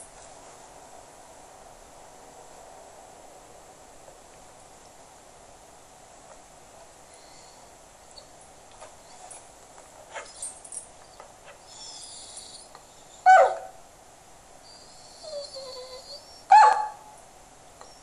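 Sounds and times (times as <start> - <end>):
dog whining softly: 7.1 - 9.5, 10.1 - 13.7, 14.6 - 17.0, 17.8 - 18.0
dog barking: 13.3 - 13.8, 16.5 - 17.1.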